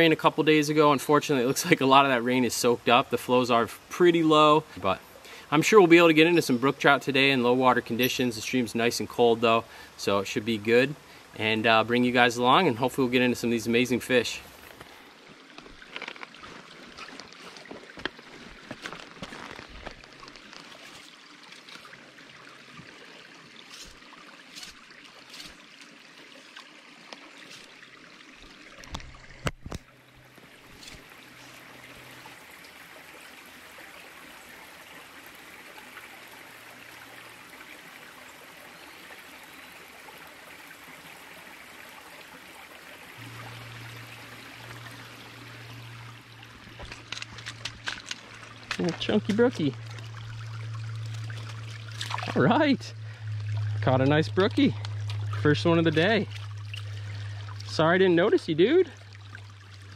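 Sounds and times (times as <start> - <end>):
stream trickling over stones: 0.0 - 59.9
low hum: 43.1 - 59.9.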